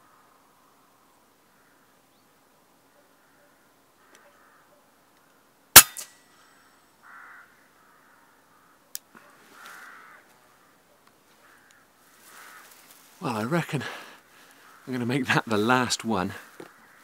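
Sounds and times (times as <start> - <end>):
air rifle shot crack: 5.8 - 6.2.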